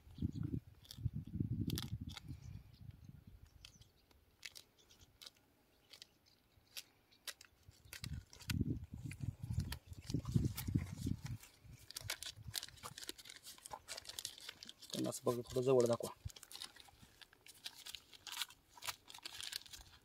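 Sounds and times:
plastic bag crackling: 6.7 - 20.0.

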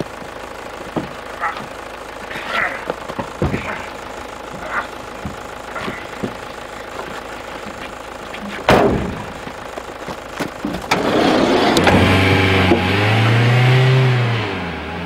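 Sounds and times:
vehicle door slamming: 8.5 - 13.0
engine starting and revving: 10.8 - 15.0.

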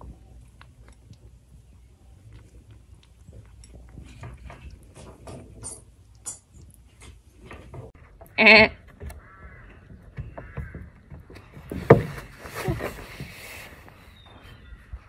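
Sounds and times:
kitten crunching kibble: 0.0 - 7.4.

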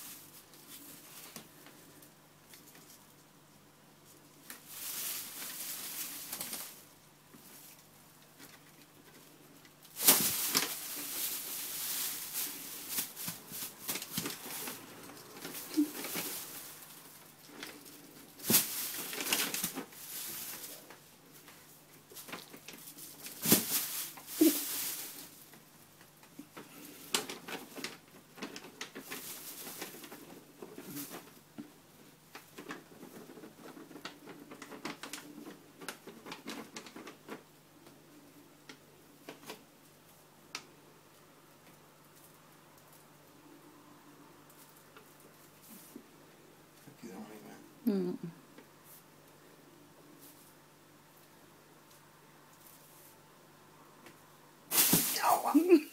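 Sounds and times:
plastic bag crinkling: 4.4 - 25.6, 54.7 - 55.9.

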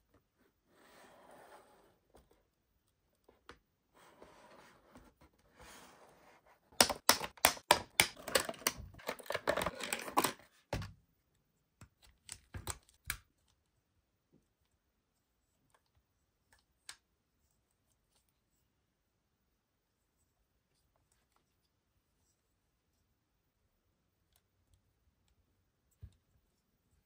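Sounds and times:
plastic packaging clicks and crackles: 6.8 - 10.5.

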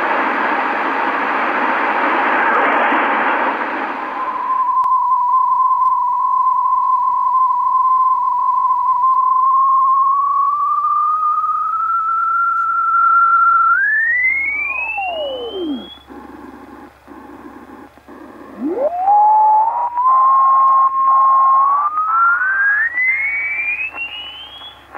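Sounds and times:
faint radio hiss: 0.0 - 24.9
radio carrier whistle: 3.9 - 16.4, 18.1 - 24.9
second falling whistle: 4.1 - 16.0, 18.6 - 24.9.

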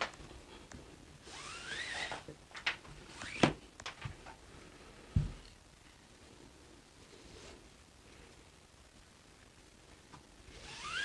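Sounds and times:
nylon cord rasping through: 1.3 - 2.2.

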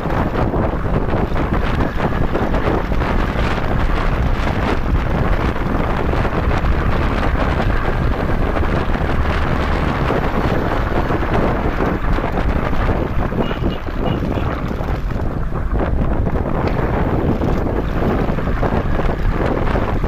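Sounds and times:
motorcycle engine: 0.0 - 20.0
road noise: 0.0 - 20.0
wind buffeting microphone: 0.0 - 20.0.

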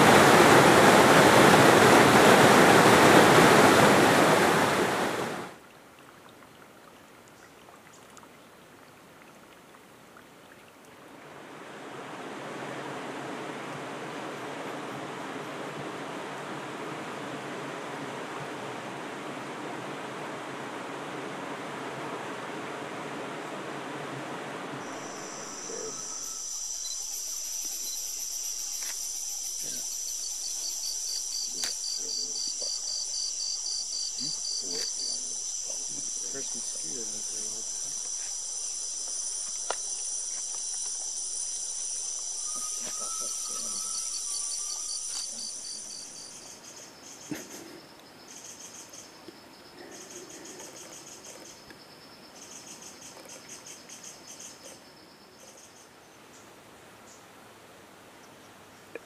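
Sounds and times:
insects trilling: 23.4 - 56.5.

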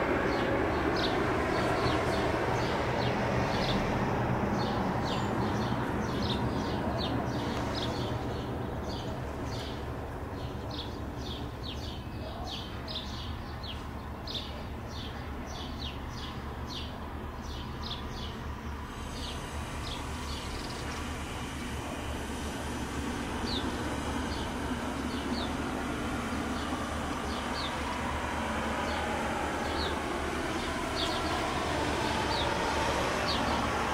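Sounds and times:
turboprop engines running: 0.0 - 33.9.

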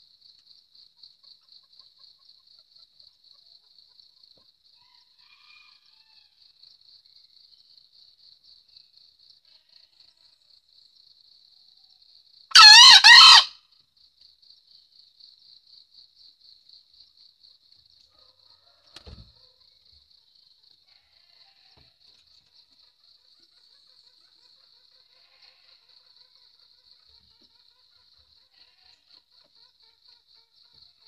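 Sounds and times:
insects chirping: 0.0 - 31.0
junglefowl crowing: 12.5 - 13.6.

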